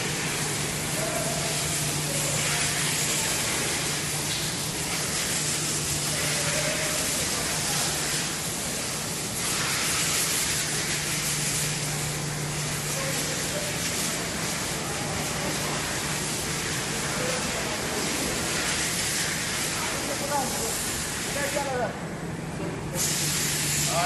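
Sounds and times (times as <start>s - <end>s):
machinery hiss: 22.9s - 24.0s.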